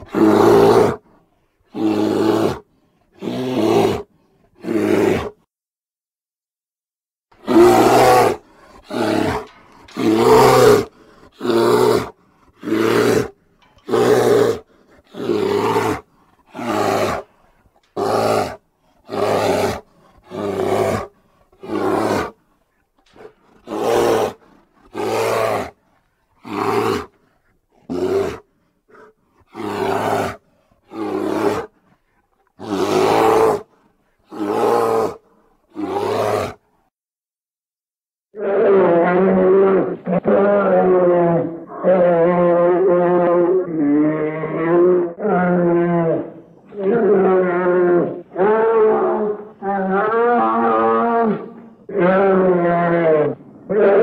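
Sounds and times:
deep animal roars: 0:07.4 - 0:22.4, 0:27.8 - 0:31.7, 0:32.6 - 0:33.7.

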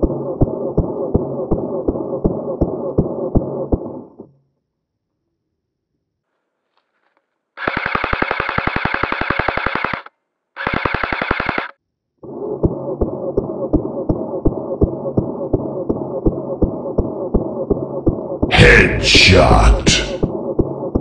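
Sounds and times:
rapid automatic gunfire: 0:07.6 - 0:11.8.

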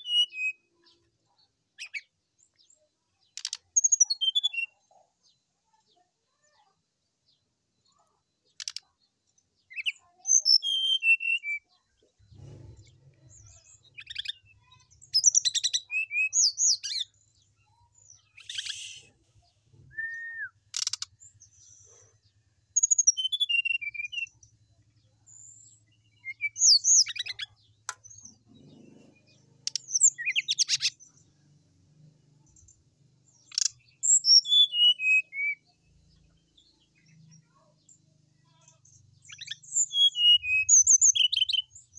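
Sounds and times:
flycatcher singing: 0:12.6 - 0:21.8, 0:22.7 - 0:41.9.

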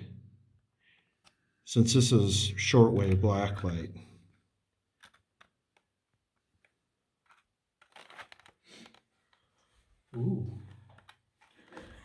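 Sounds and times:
person speaking: 0:01.7 - 0:04.2, 0:10.1 - 0:11.1.

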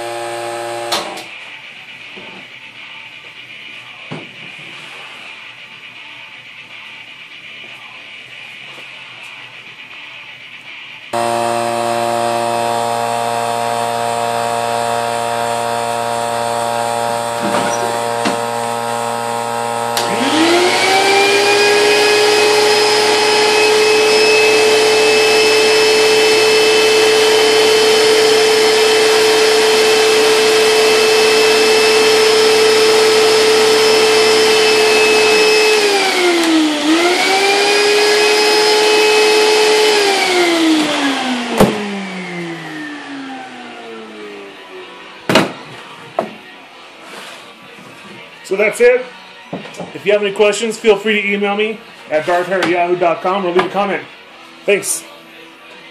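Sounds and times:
shop vac motor whine: 0:00.0 - 0:01.3, 0:11.1 - 0:45.4
vacuum pump humming: 0:00.0 - 0:01.3, 0:11.2 - 0:44.5.

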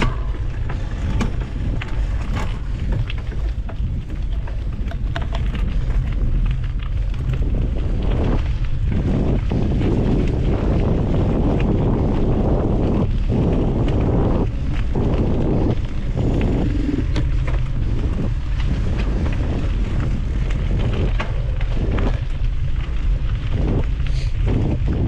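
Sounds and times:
bike rattling over bumps: 0:00.0 - 0:25.0
steady rumble: 0:00.0 - 0:25.0
wind buffeting microphone: 0:00.0 - 0:25.0.

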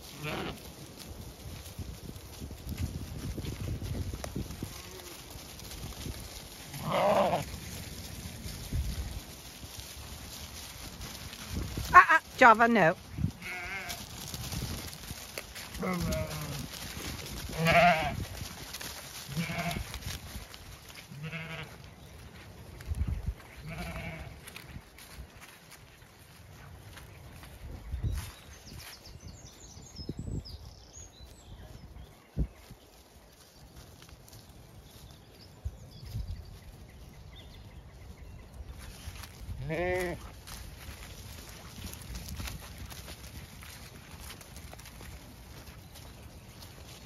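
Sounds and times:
wind rumble on microphone: 0:00.0 - 0:12.4, 0:13.0 - 0:25.5, 0:26.6 - 0:33.0, 0:33.8 - 0:47.0
sheep bleating: 0:00.1 - 0:00.7, 0:04.6 - 0:05.2, 0:06.7 - 0:07.5, 0:13.4 - 0:14.0, 0:15.7 - 0:16.7, 0:17.5 - 0:18.2, 0:19.3 - 0:19.9, 0:21.1 - 0:21.8, 0:23.6 - 0:24.4, 0:39.6 - 0:40.3.

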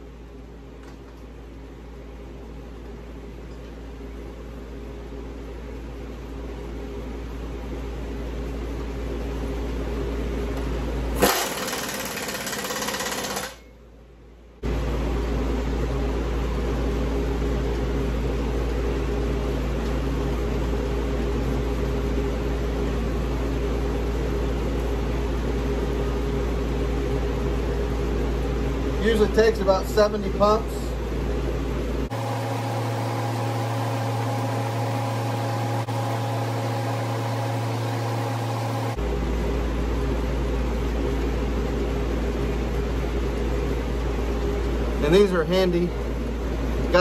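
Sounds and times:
machine humming: 0:32.0 - 0:39.2.

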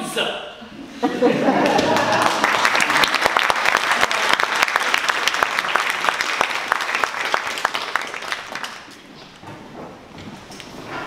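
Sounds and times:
audience applauding: 0:01.4 - 0:09.0.

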